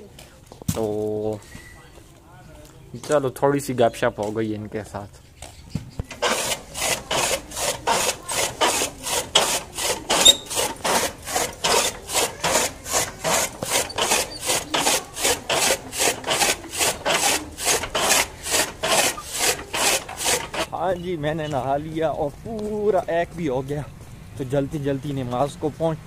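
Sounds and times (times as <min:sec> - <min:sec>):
chaff cutter blades slicing stalks: 0:06.0 - 0:20.7.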